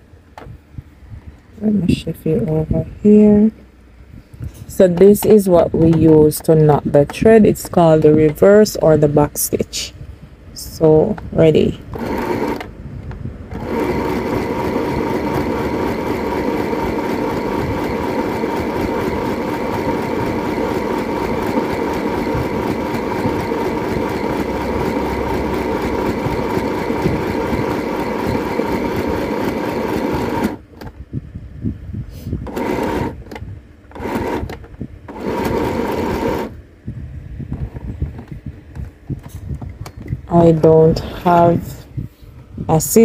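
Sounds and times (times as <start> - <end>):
sewing machine stitching: 11.9 - 12.7, 13.5 - 30.6, 32.4 - 33.3, 33.9 - 36.6.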